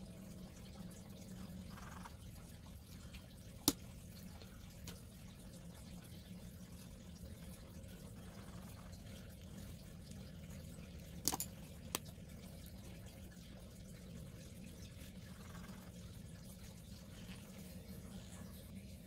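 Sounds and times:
faint room hum: 0.0 - 19.0.

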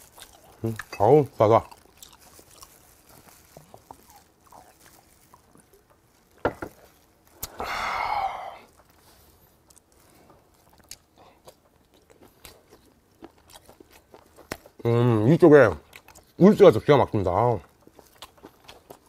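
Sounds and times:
faint chewing: 0.0 - 7.6, 8.6 - 14.9, 15.6 - 16.5, 17.1 - 19.0
glass bottle set down on table: 6.4 - 6.7.

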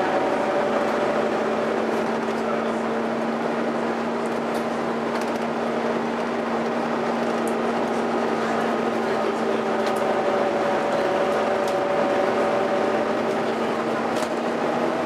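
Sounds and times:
bus engine drone: 0.0 - 15.0.

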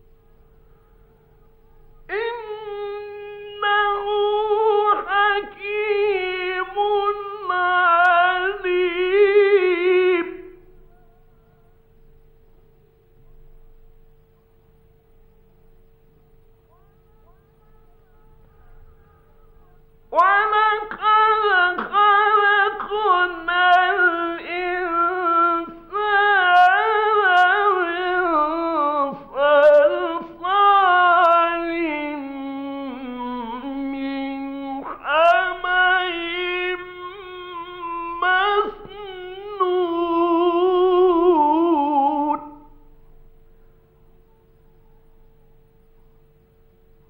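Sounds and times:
faint steady hum: 0.0 - 47.0
man chanting: 2.1 - 10.6, 16.7 - 42.7.

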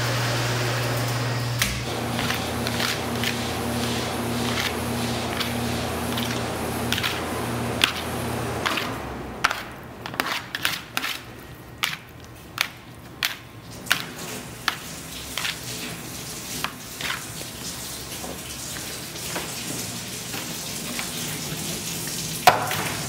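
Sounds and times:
hands patting dough in metal pan: 2.0 - 17.6.

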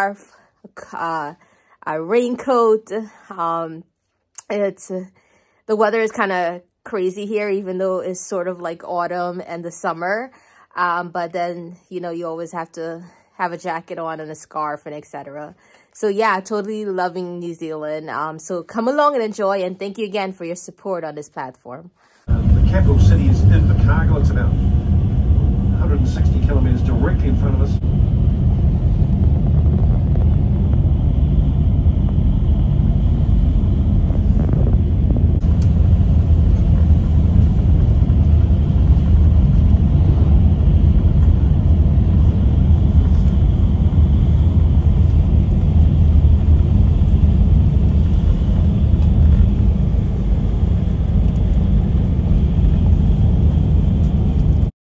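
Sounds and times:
vehicle engine and road rumble: 22.3 - 54.7.

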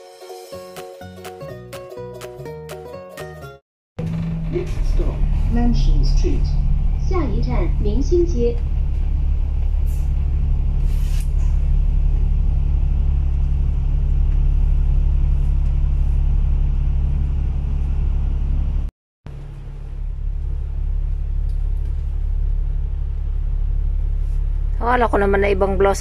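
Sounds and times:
bus engine low rumble: 4.0 - 26.0
short hiss: 10.8 - 11.6.

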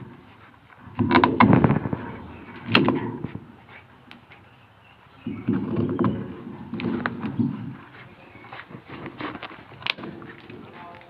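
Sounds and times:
bear cracking coconut husk: 8.6 - 11.0.

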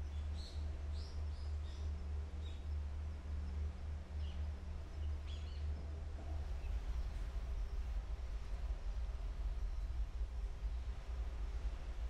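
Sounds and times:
steady low rumble: 5.7 - 12.0.

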